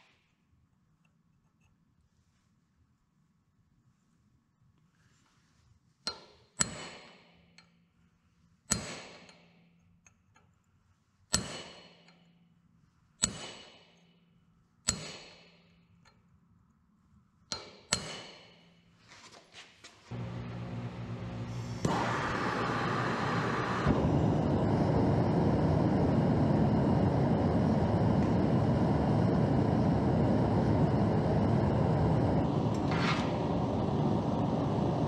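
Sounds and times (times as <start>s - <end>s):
hammer striking chisel on metal: 6.0s - 7.7s, 8.7s - 10.5s, 11.3s - 12.3s, 13.2s - 14.1s, 14.8s - 16.2s, 17.5s - 18.7s
gas forge burner rushing hum: 20.1s - 35.0s.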